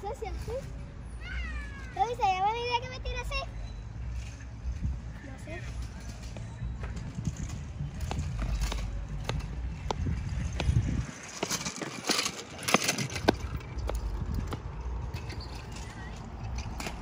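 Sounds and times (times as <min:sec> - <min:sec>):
scooter wheels rumbling on concrete: 0:04.7 - 0:17.0
scooter clicks and rattles: 0:05.8 - 0:17.0.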